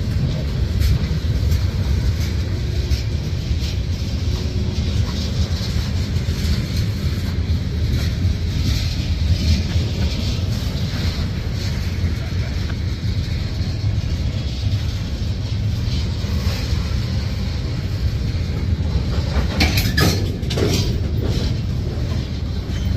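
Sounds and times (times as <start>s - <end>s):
train wheels rumbling on rails: 0.0s - 22.9s
clicks and clanks: 18.2s - 22.9s.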